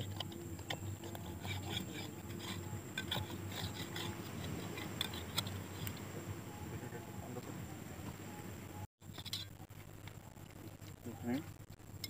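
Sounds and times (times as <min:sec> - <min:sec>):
hand scraping rough rock: 0:00.0 - 0:06.1.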